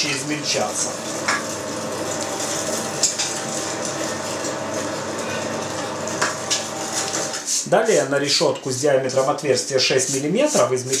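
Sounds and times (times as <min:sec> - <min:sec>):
meat grinder humming: 0:00.0 - 0:09.0.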